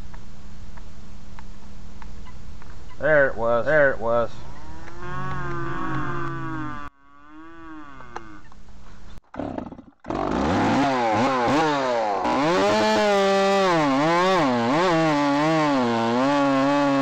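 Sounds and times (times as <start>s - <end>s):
falling tone: 3.7s - 6.9s
chainsaw revving: 9.4s - 17.0s.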